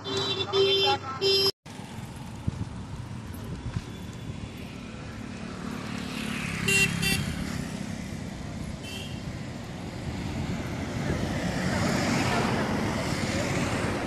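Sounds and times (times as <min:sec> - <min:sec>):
car horn toots: 0:00.0 - 0:01.5
road traffic passing: 0:00.0 - 0:14.0.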